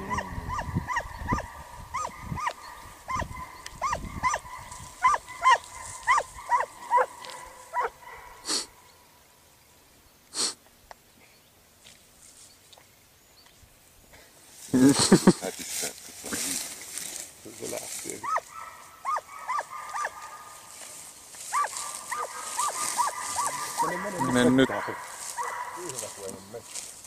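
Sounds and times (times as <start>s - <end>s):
dog yelping: 0.0s - 8.6s, 18.2s - 20.7s, 21.5s - 26.1s.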